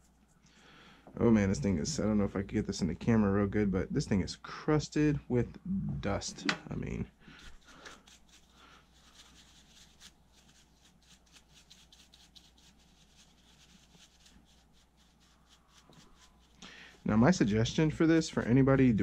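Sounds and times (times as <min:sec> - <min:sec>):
paintbrush scrubbing fan: 0:07.3 - 0:18.5.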